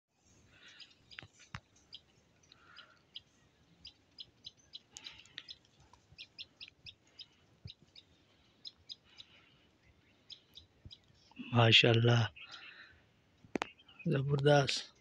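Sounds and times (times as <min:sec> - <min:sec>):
small birds chirping: 0:00.2 - 0:15.0.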